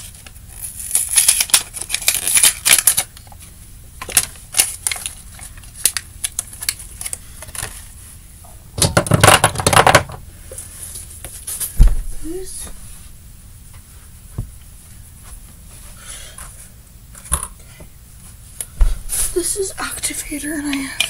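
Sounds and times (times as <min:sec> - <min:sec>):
plastic containers clattering: 0:08.8 - 0:10.2.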